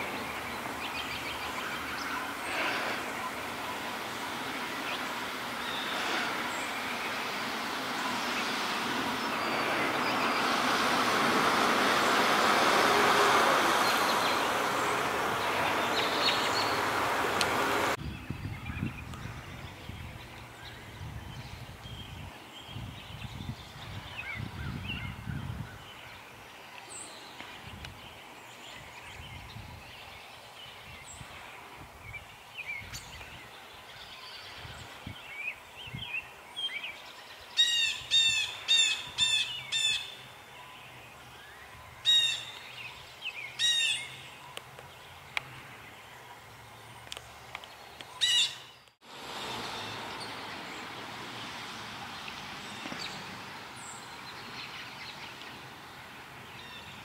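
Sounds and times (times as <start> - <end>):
steady rushing noise: 0.0 - 18.0.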